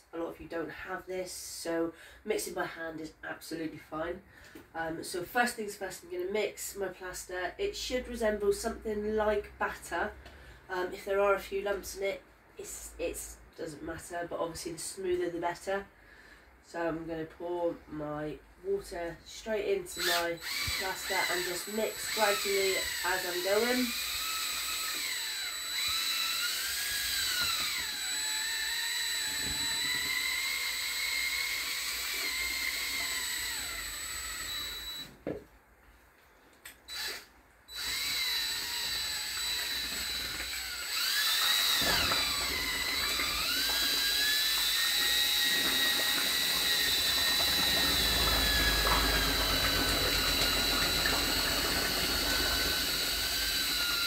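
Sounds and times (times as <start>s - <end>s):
cordless drill mixer whining: 19.9s - 35.2s, 36.9s - 54.0s.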